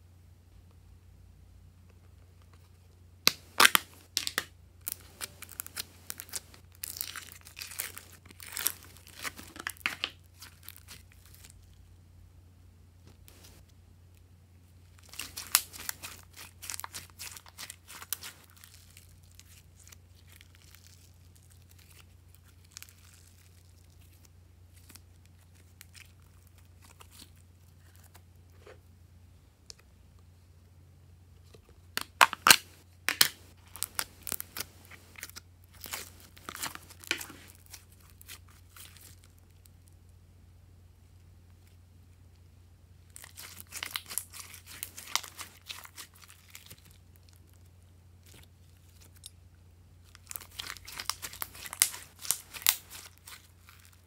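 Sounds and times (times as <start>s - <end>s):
slime crackling and popping: 3.3s - 11.7s, 14.9s - 28.2s, 32.0s - 39.7s, 43.1s - 47.6s, 50.0s - 54.0s.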